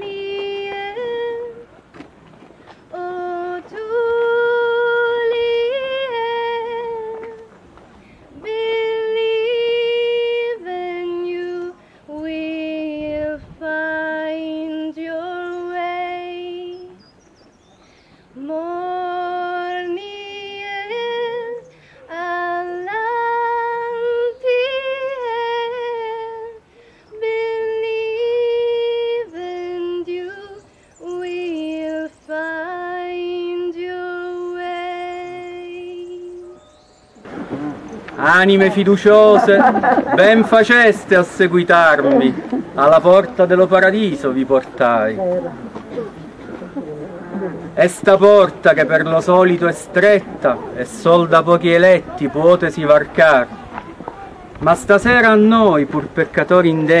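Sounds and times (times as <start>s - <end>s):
woman singing slow melody: 0.0s - 1.8s, 2.8s - 7.6s, 8.3s - 17.1s, 18.4s - 36.7s
singer breathing: 21.7s - 22.1s, 26.6s - 27.2s.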